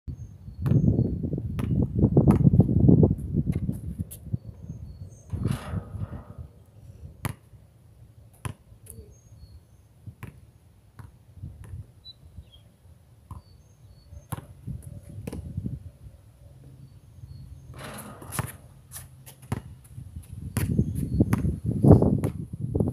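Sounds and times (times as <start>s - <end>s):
wind rumble on microphone: 0.1s - 7.3s, 11.4s - 12.6s, 14.4s - 16.3s, 17.2s - 22.9s
basketball bouncing on asphalt: 0.6s - 2.8s, 7.2s - 7.6s, 8.3s - 9.0s, 10.0s - 11.9s, 13.3s - 15.6s, 17.6s - 22.5s
birds chirping: 4.1s - 10.7s, 12.0s - 21.6s
ball hitting basketball rim: 5.3s - 6.6s, 17.6s - 19.8s.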